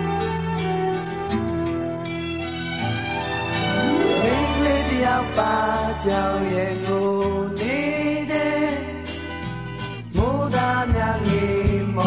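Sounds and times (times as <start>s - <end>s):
pop song with singing: 4.0s - 12.0s.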